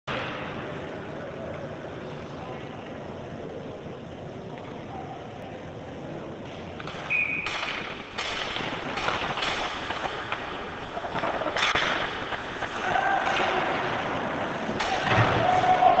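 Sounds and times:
hockey sticks clacking: 0:06.4 - 0:16.0
skates scraping ice: 0:06.8 - 0:16.0.

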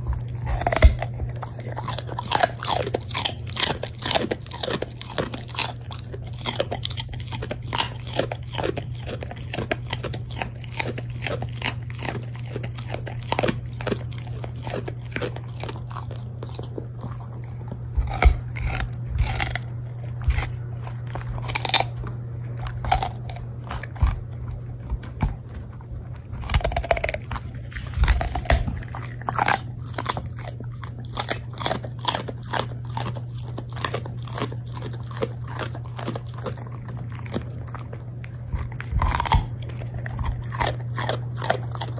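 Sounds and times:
dog crunching a carrot: 0:00.0 - 0:41.9
steady low hum: 0:00.0 - 0:41.9.

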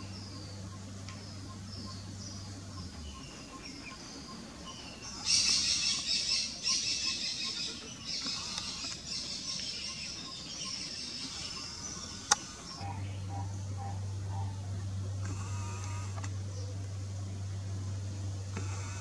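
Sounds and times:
birds chattering chirps: 0:00.0 - 0:19.0.

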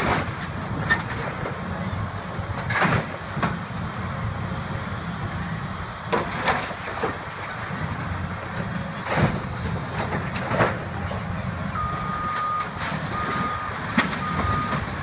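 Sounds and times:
excavator diesel engine running: 0:00.0 - 0:15.0
debris crashing and clattering: 0:02.6 - 0:03.5.

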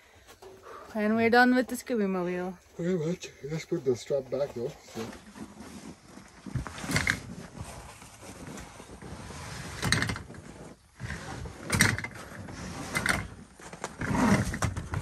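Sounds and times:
strap handling rustles and knocks: 0:04.8 - 0:15.0.

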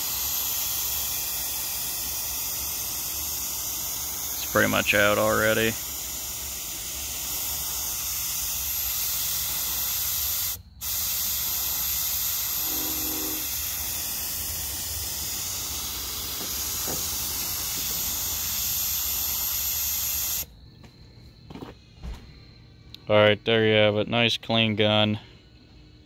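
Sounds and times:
spray gun hissing: 0:00.0 - 0:20.5.

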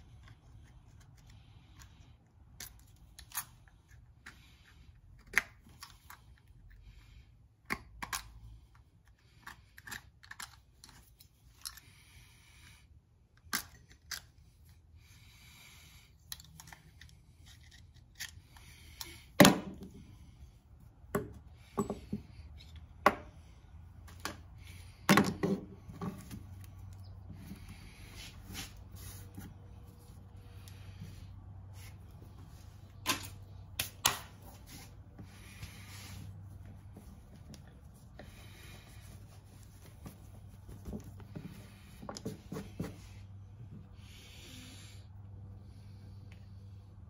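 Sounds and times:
parts set down on a wooden bench: 0:25.0 - 0:26.4.

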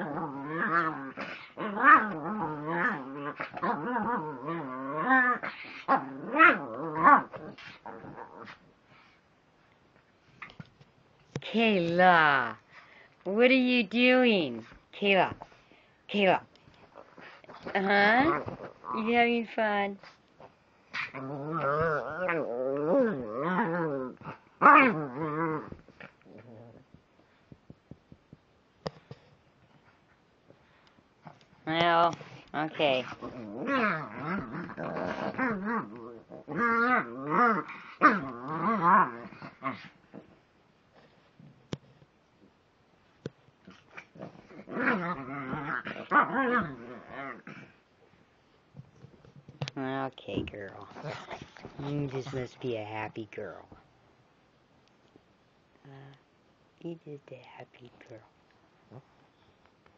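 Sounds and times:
small dog growling in play: 0:00.0 - 0:09.1, 0:20.9 - 0:26.9, 0:32.2 - 0:40.4, 0:43.6 - 0:47.8, 0:50.8 - 0:52.4
dog growl-howling: 0:21.1 - 0:25.8.

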